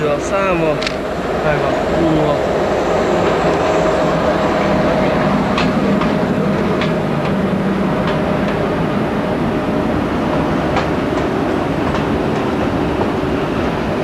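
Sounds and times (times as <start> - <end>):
train rumble: 0.0 - 14.0
wheels clicking over rail joints: 5.5 - 7.4.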